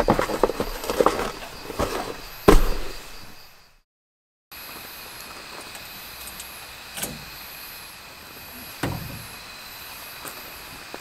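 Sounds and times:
dull heavy clunks: 8.8s - 9.5s.

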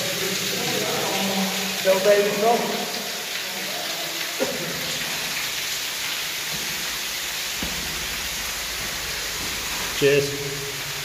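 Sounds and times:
water rushing in a tunnel: 0.0s - 11.0s.

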